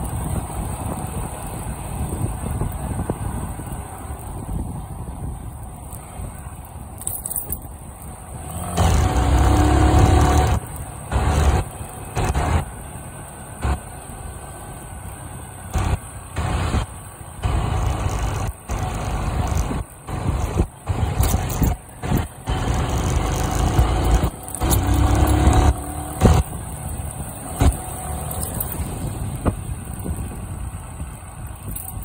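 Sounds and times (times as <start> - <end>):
motorcycle engine: 5.9 - 32.0
wind buffeting microphone: 28.8 - 32.0.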